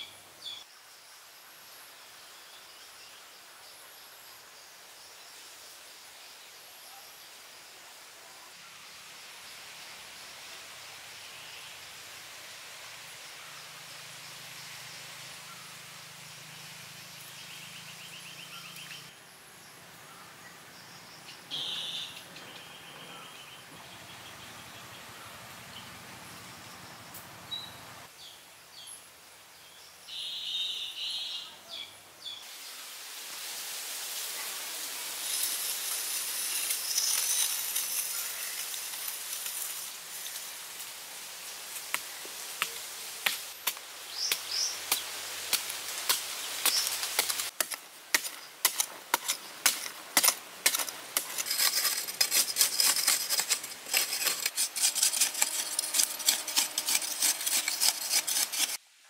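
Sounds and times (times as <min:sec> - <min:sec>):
high insect hiss: 0:00.0 - 0:58.8
digging tool chopping soil: 0:43.2 - 0:58.8.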